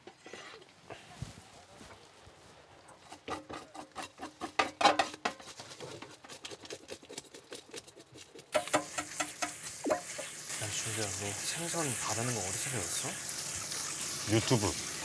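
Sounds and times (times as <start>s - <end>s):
steady hiss: 8.6s - 15.0s.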